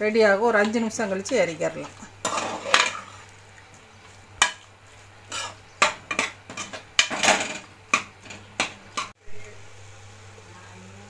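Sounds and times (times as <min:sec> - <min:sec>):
metal spoon scraping metal pot: 0:00.5 - 0:03.2, 0:05.2 - 0:09.1.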